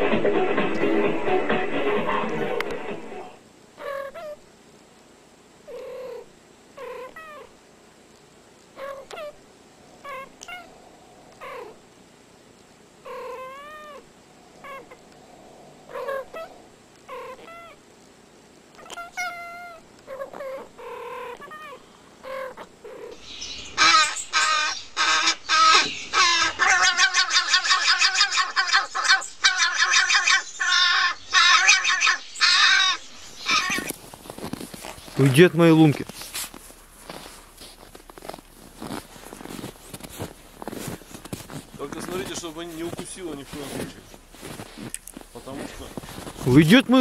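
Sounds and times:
cats meowing and chirping: 3.8s - 4.4s, 5.7s - 7.5s, 8.8s - 9.4s, 10.0s - 11.8s, 13.0s - 15.0s, 15.8s - 17.8s, 18.8s - 34.7s
crow cawing harshly: 23.8s - 33.9s.

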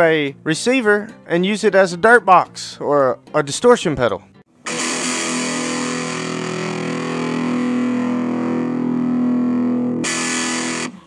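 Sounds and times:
distorted electric guitar strum: 4.6s - 11.0s.

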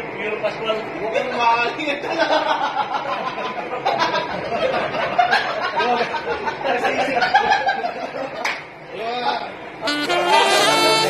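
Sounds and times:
men talking: 0.0s - 4.9s, 5.6s - 11.0s
men chuckling: 2.1s - 8.4s.

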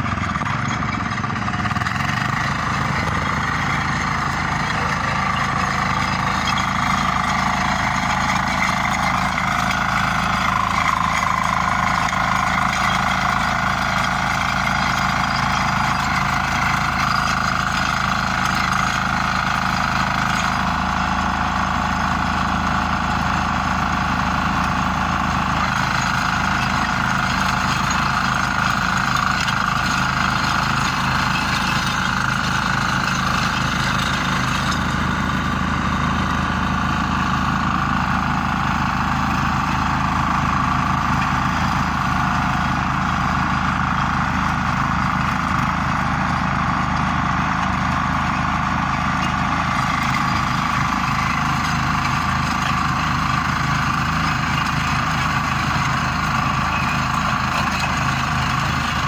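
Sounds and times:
rotary tiller engine under load: 0.0s - 59.0s.

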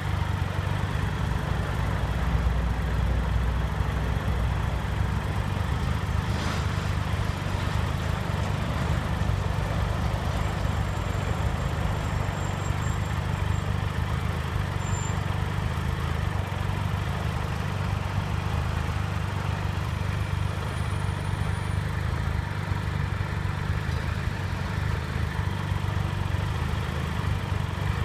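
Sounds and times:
motorcycle engine idling: 0.0s - 6.3s, 6.9s - 28.0s.

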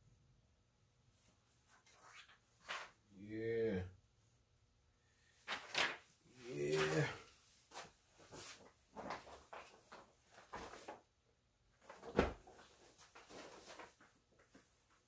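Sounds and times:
soft fabric rustles: 5.4s - 11.1s, 11.7s - 15.0s.

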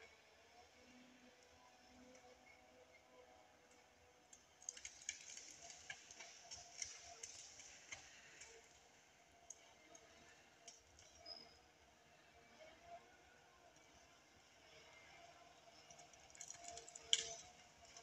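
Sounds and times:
faint clicks and crackles: 3.7s - 11.5s, 15.8s - 18.0s.

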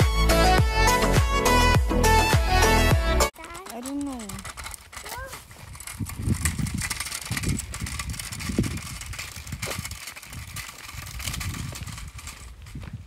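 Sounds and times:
footsteps on gravel: 3.3s - 13.0s
wind rumbling on microphone: 4.2s - 13.0s.

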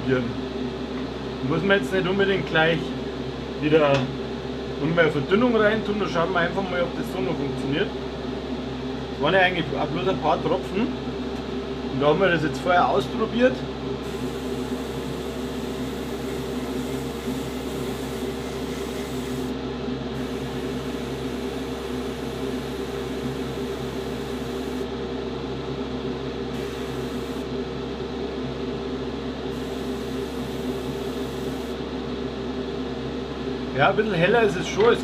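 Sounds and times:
steady machine hum: 0.0s - 35.0s
airbrush air hissing: 14.0s - 19.5s, 20.2s - 24.8s, 26.6s - 27.5s, 29.5s - 31.8s.

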